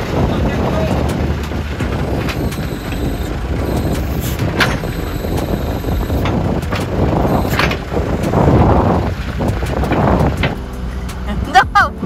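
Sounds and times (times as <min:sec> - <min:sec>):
heavy vehicle engine running: 0:00.0 - 0:12.0.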